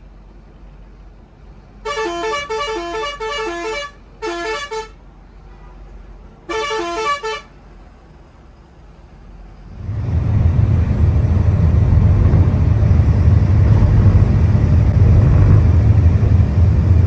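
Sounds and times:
low road rumble: 0:00.0 - 0:17.0
musical vehicle horn: 0:01.8 - 0:05.8, 0:06.5 - 0:07.5.

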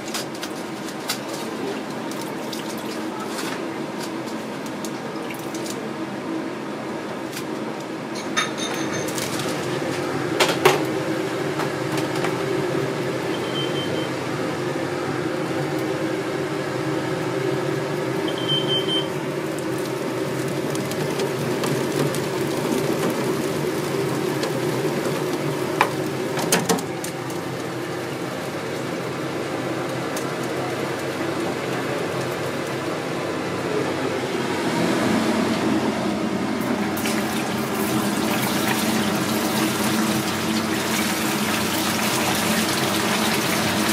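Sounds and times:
steady hum: 0:23.4 - 0:41.2
water running into metal sink: 0:37.0 - 0:43.9.

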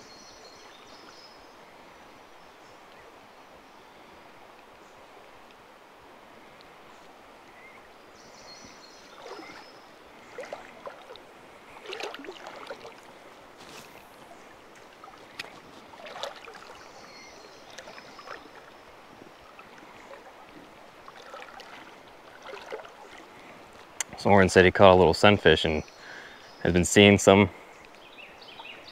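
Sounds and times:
water splashing and sloshing: 0:04.4 - 0:24.2.

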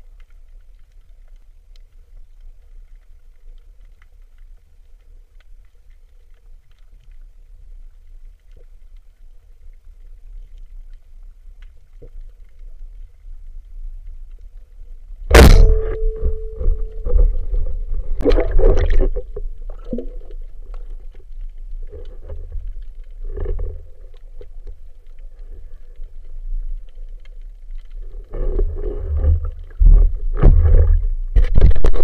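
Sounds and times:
water bubbling and sloshing: 0:00.0 - 0:32.0
underwater ringing tone: 0:15.3 - 0:17.9.

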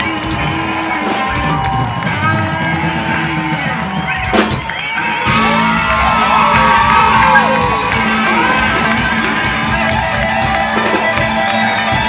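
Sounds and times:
drums: 0:00.0 - 0:12.0
electric guitars: 0:00.0 - 0:12.0.

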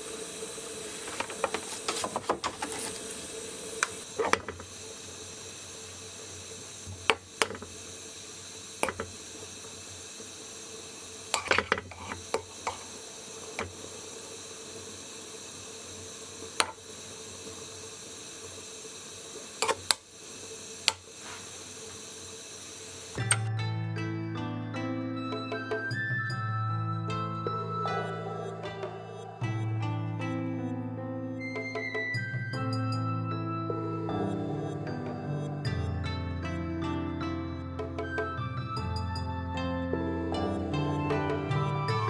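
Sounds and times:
pot of broth boiling: 0:00.0 - 0:23.5.

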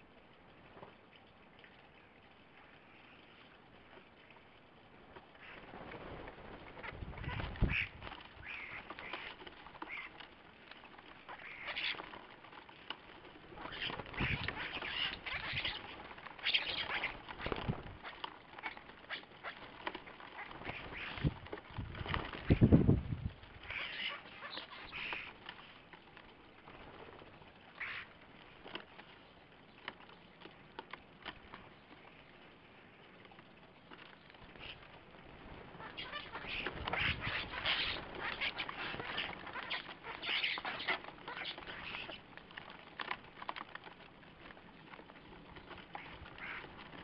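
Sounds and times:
wings fluttering: 0:00.5 - 0:47.0
starlings squawking and chattering: 0:06.5 - 0:10.2, 0:11.3 - 0:12.1, 0:13.6 - 0:21.4, 0:23.6 - 0:25.4, 0:35.6 - 0:42.3.

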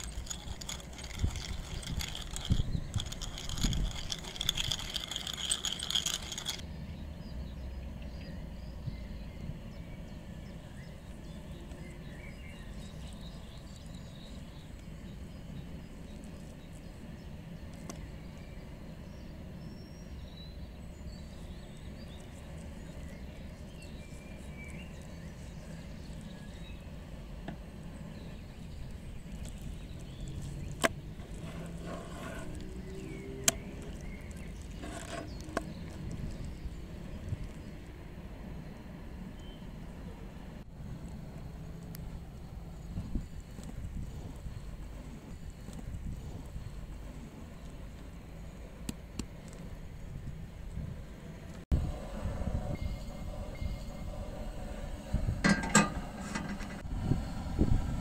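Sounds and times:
pepper mill grinding: 0:00.0 - 0:06.6, 0:28.8 - 0:37.7
outdoor background noise: 0:00.0 - 0:58.0
faint bird chirps: 0:52.6 - 0:55.2.

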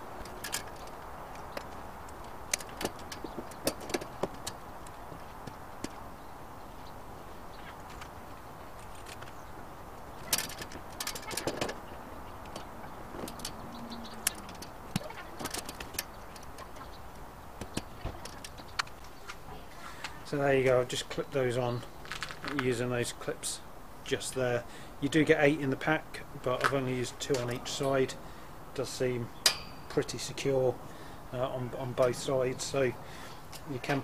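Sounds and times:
clips snapping onto wire mesh: 0:29.4 - 0:29.8.

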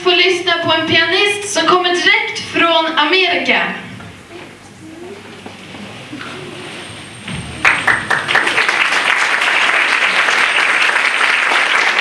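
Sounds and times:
audience applauding: 0:07.4 - 0:12.0.

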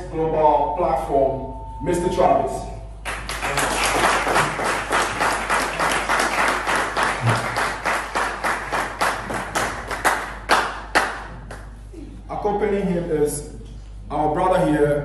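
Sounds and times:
audience applauding: 0:03.0 - 0:11.7
sharp claps: 0:03.0 - 0:11.8.

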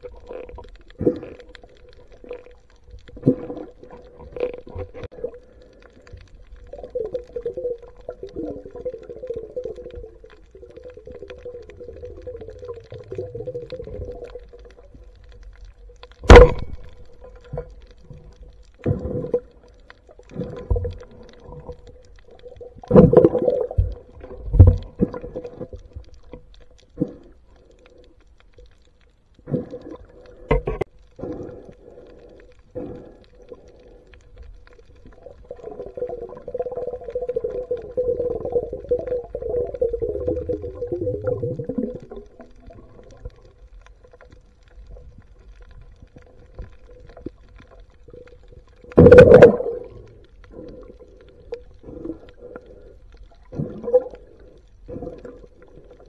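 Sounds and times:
faint underwater hum: 0:00.0 - 0:56.0
sharp crack: 0:16.1 - 0:17.2.

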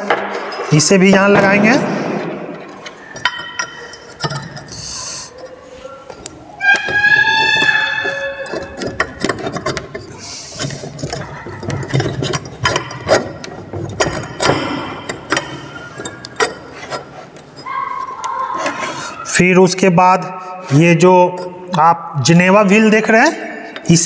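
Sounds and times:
metallic clicks and knocks: 0:00.0 - 0:18.8
metal scrape: 0:00.4 - 0:19.2.

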